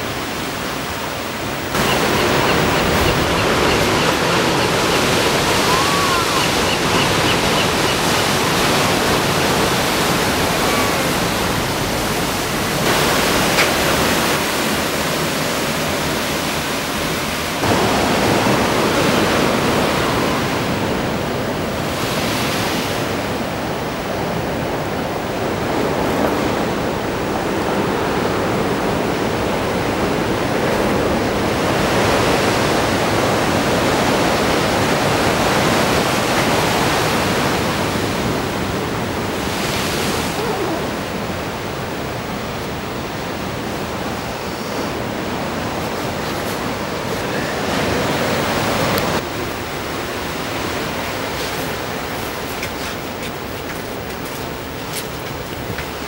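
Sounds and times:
ocean waves breaking on a seawall: 0.0 - 56.0.

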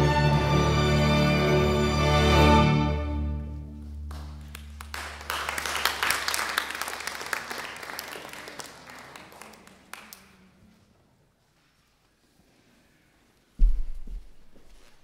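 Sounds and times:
audience applause: 4.1 - 10.5.

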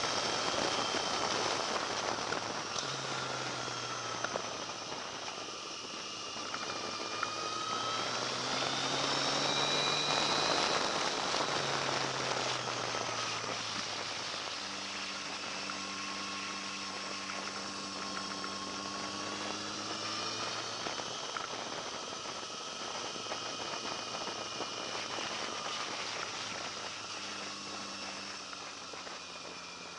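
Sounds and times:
motorcycle engine revving: 0.0 - 29.9.

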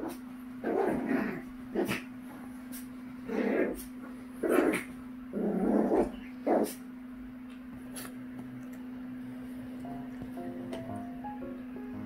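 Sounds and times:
small dogs growling: 0.0 - 6.9
steady low hum: 0.0 - 12.0.

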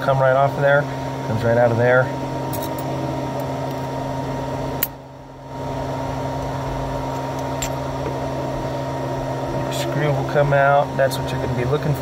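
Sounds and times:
machine hum: 0.0 - 12.0.

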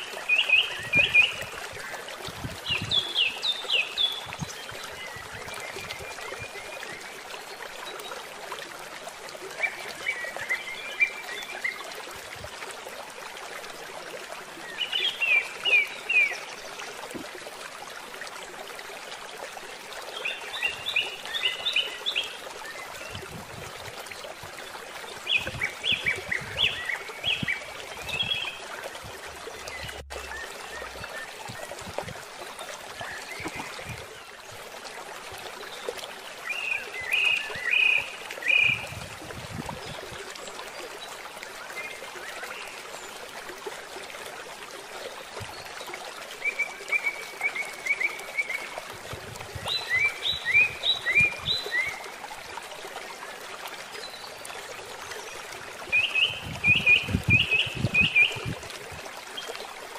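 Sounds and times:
bird song: 0.0 - 8.1, 25.2 - 28.7, 35.6 - 39.0, 49.6 - 52.0, 55.0 - 58.5.

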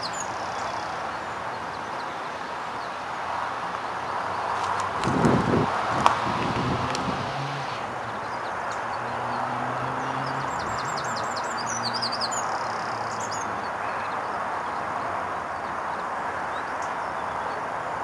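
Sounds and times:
bird chirping: 0.0 - 2.2, 7.2 - 14.2.

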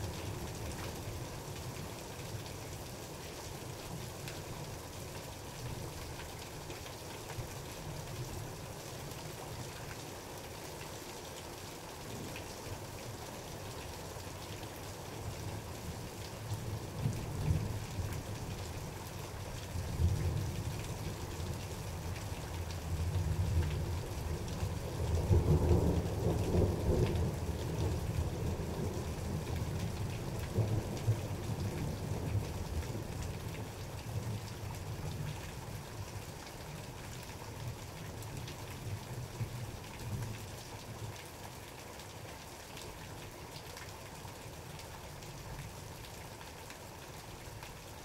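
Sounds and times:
steady rain: 0.0 - 48.0.

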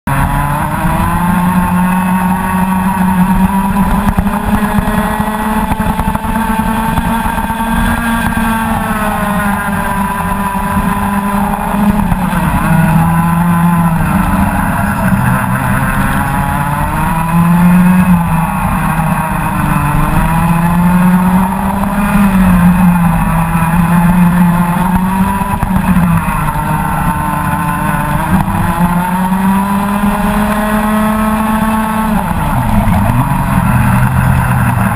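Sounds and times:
kart engine revving: 0.0 - 34.9.

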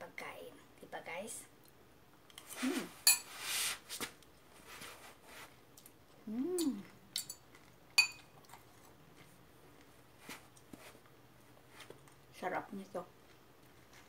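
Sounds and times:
chewing: 5.8 - 10.7, 13.2 - 14.0
closed-mouth hum: 6.1 - 7.1
fork clinking on ceramic bowl: 7.2 - 7.4, 8.0 - 8.3.

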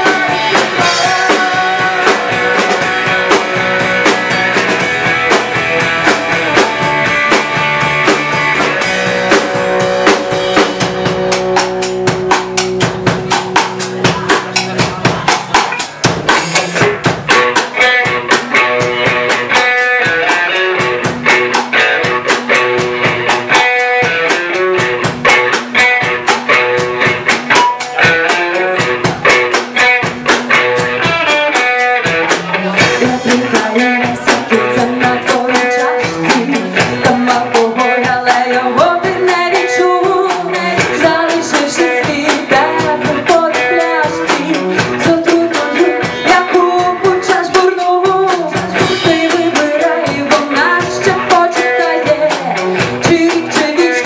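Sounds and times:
woman singing: 0.0 - 4.4, 32.5 - 54.0
bass guitar: 0.0 - 54.0
drum kit: 0.0 - 54.0
electric guitar: 0.0 - 54.0.

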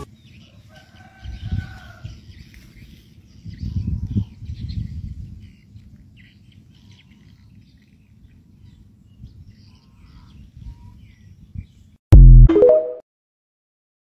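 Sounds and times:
wind rumble on microphone: 1.0 - 6.2, 8.2 - 12.0
electronic sound rising in pitch: 12.1 - 13.0.

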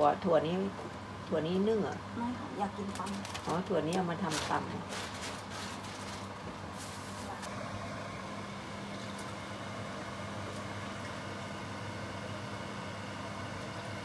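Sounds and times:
stovetop low hum and hiss: 0.0 - 14.0.

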